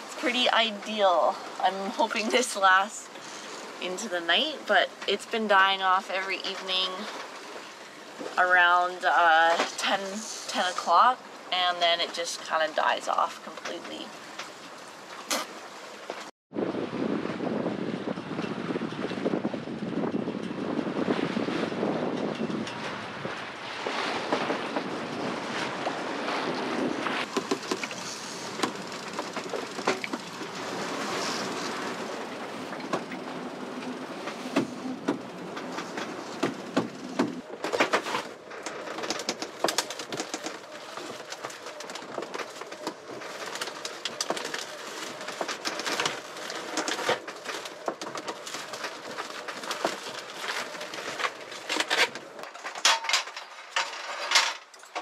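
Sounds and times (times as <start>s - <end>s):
wind: 0.0s - 55.0s
water rushing: 22.7s - 38.6s
sharp knocks and clatter: 27.2s - 32.0s, 32.7s - 40.6s.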